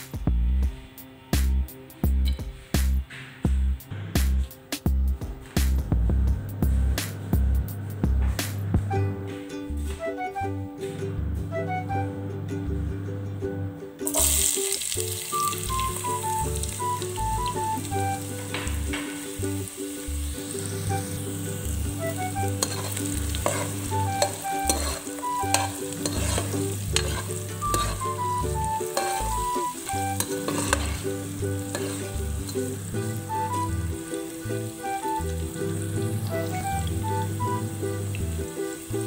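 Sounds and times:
background music: 0.0s - 39.0s
onions sizzling in hot oil: 14.0s - 39.0s
spatula stirring in a pan: 22.1s - 36.6s.

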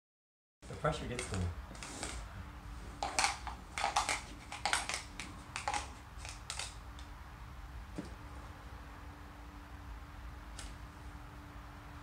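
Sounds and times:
dice clattering in plastic cup: 3.0s - 6.8s.

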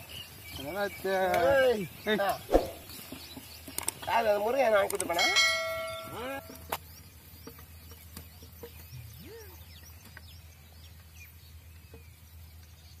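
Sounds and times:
small birds chirping: 0.0s - 13.0s
faint clicks: 4.8s - 5.2s.

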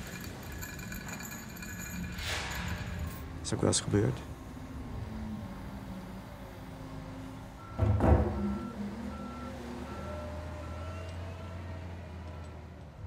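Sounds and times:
reversing alarm beeping: 7.6s - 12.5s.

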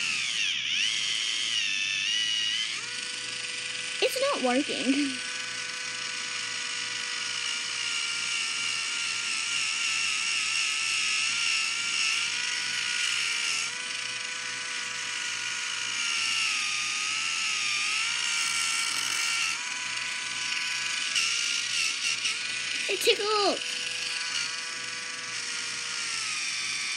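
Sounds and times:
electric pedicure tool whine: 0.0s - 26.9s.

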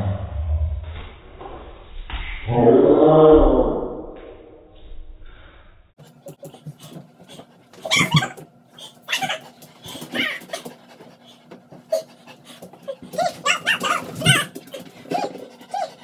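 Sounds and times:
dog panting: 6.0s - 16.0s
dog whining: 7.3s - 10.8s, 11.9s - 16.0s.

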